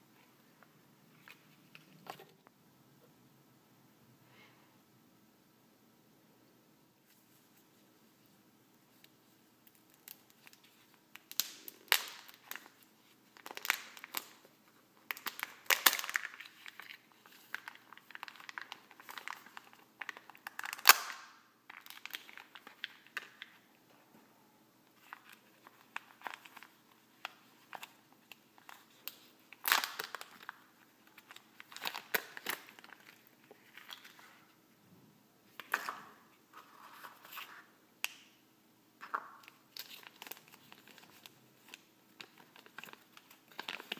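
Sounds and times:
wrapper tearing and crinkling: 0:09.7 - 0:14.5, 0:15.1 - 0:23.4, 0:28.6 - 0:34.2, 0:39.4 - 0:43.9
sharp plastic crack: 0:20.4 - 0:22.2.

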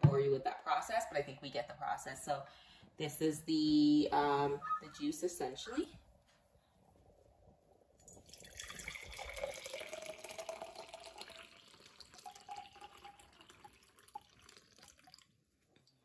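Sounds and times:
liquid pouring into glass jar: 0:08.0 - 0:15.4.

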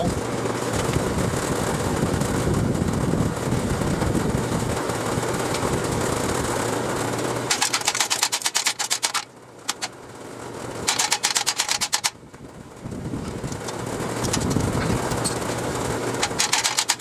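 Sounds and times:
low motor hum: 0:00.0 - 0:07.9, 0:12.1 - 0:17.0
drum fan air rush: 0:00.0 - 0:17.0.

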